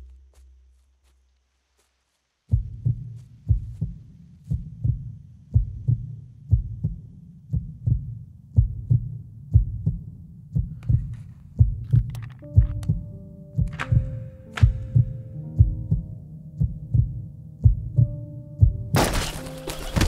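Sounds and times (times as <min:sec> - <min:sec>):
heartbeat thumps: 0:02.5 - 0:19.1.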